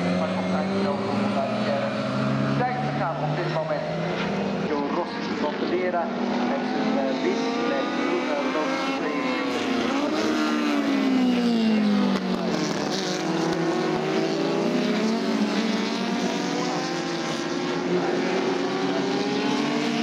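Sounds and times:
racing car engines accelerating: 0:00.0 - 0:20.0.

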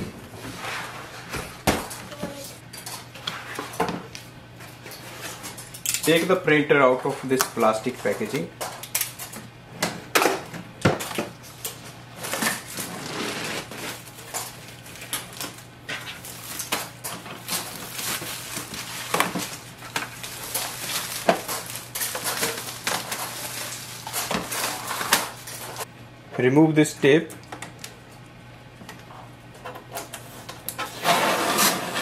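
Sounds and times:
plastic packaging crinkling: 0:12.2 - 0:25.8.

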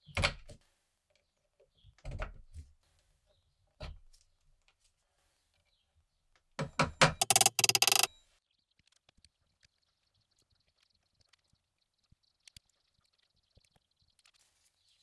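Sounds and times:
sharp metallic clicks: 0:07.2 - 0:08.1.

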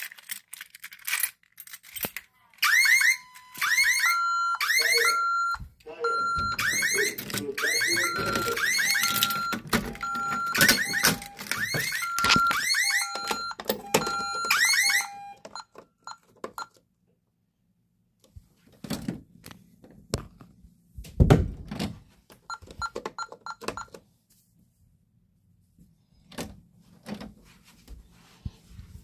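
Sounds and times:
two-tone fire alarm: 0:02.6 - 0:16.2
keypad button beeps: 0:07.8 - 0:11.4, 0:12.0 - 0:14.5.

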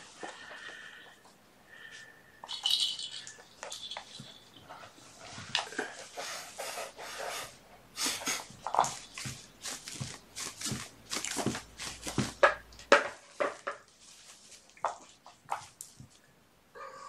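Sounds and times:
kittens scratchy rustles: 0:02.5 - 0:12.4, 0:13.2 - 0:16.2
paws and claws tapping: 0:08.4 - 0:13.7.

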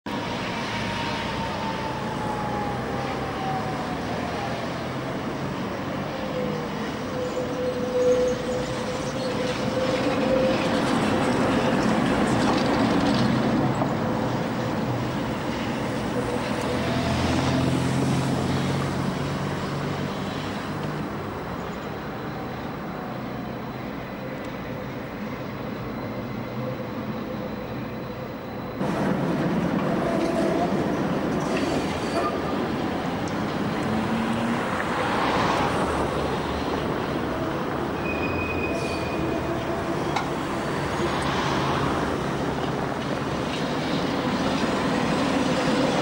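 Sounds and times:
tram whine: 0:00.1 - 0:46.0
wheels rumbling on rails: 0:00.1 - 0:46.0.

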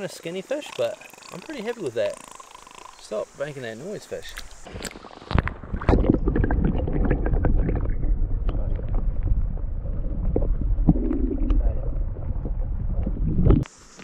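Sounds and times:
underwater rumble of flowing water: 0:04.2 - 0:13.7.

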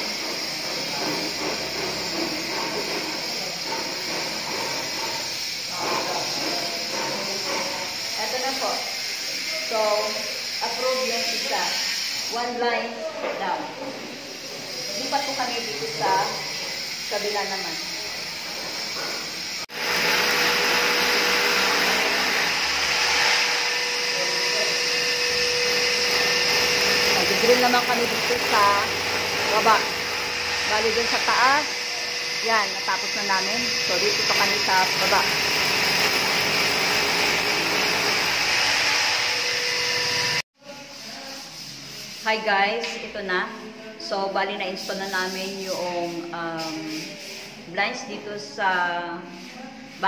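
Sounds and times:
electric drill boring into wall: 0:00.0 - 0:12.6, 0:15.0 - 0:40.4
vacuum cleaner whine: 0:00.0 - 0:40.4.

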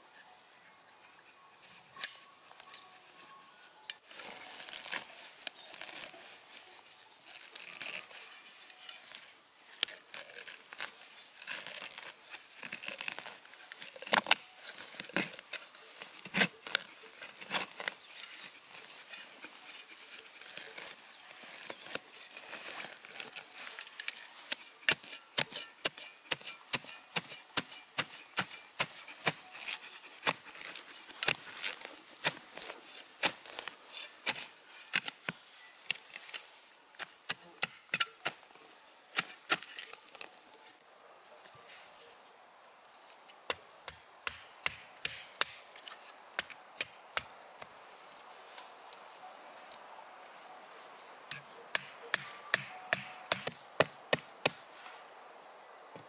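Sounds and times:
shovel chopping into soil: 0:07.3 - 0:38.5, 0:39.1 - 0:40.4, 0:43.5 - 0:47.7, 0:51.3 - 0:55.0.

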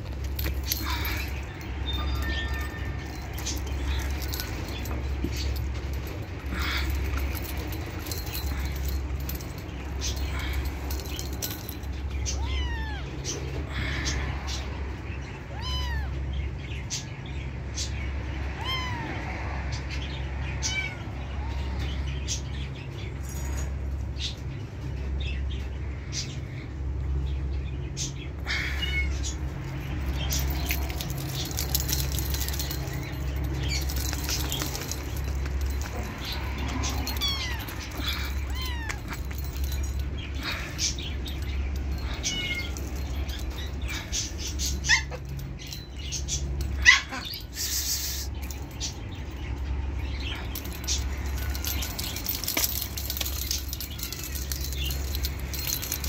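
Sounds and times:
small bell jingling: 0:00.0 - 0:13.6, 0:19.9 - 0:56.0
kitten meowing: 0:12.4 - 0:13.1, 0:15.5 - 0:16.2, 0:18.6 - 0:19.2, 0:38.5 - 0:39.0.

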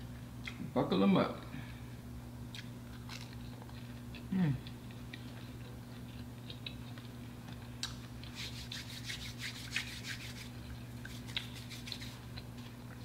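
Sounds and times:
hands rubbing together: 0:08.3 - 0:12.2.

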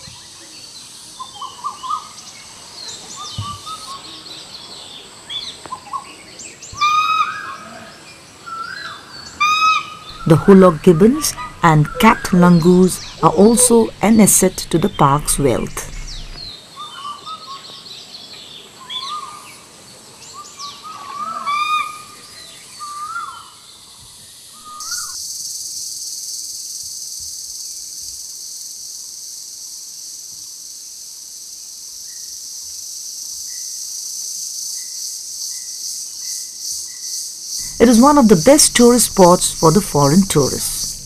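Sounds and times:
bird chirps: 0:10.1 - 0:16.5
high-pitched insect chorus: 0:24.3 - 0:41.0.

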